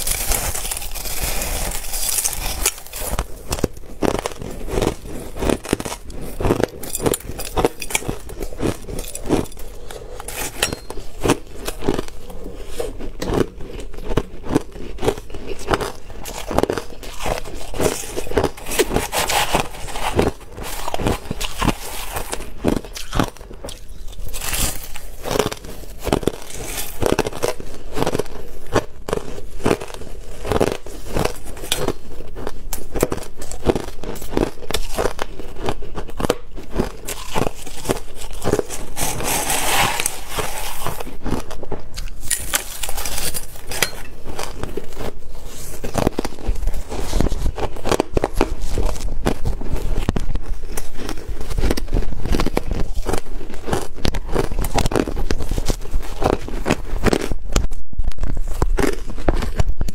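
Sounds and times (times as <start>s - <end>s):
crushed ice being chewed: 0.0s - 59.9s
metal spoon scooping ice: 6.8s - 11.8s, 37.6s - 41.1s, 42.2s - 44.5s.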